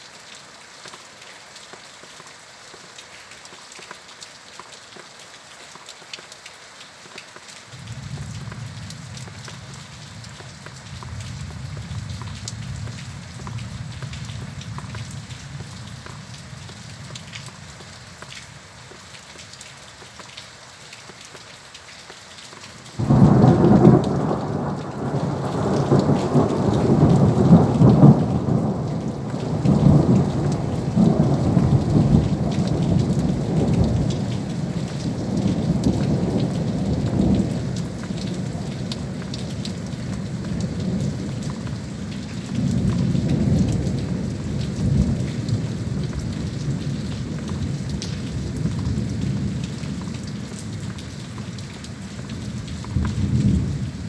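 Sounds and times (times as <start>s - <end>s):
steady rain: 0.0s - 54.0s
thunder clap and rumble: 23.0s - 41.8s.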